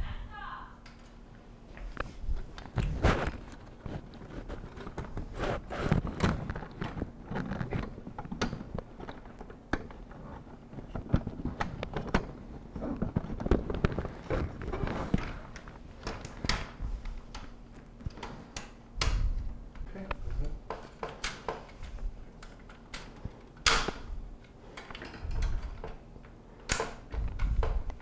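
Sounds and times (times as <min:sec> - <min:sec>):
wire rack shifting: 0:20.6 - 0:28.0.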